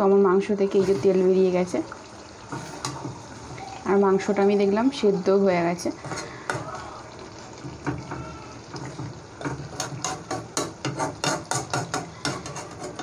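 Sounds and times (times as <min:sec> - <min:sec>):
spatula stirring thick curry: 0:08.7 - 0:13.0
spatula knocking against pan: 0:08.8 - 0:13.0.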